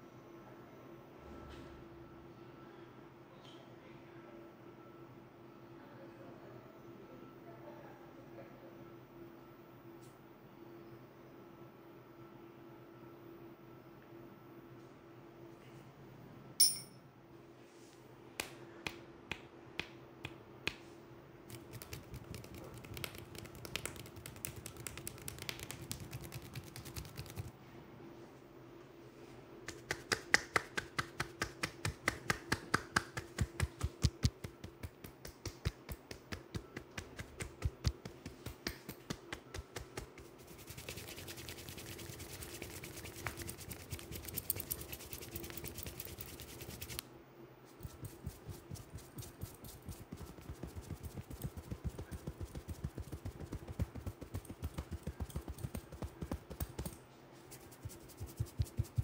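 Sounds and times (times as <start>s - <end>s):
faint steady hum: 0.0s - 59.0s
finger snaps: 18.4s - 20.9s, 29.6s - 40.1s
hands rubbing through hair: 21.5s - 27.5s, 29.7s - 47.0s, 47.7s - 59.0s
rhythmic hand taps: 21.5s - 27.5s, 29.7s - 47.0s, 47.8s - 57.0s, 57.6s - 59.0s.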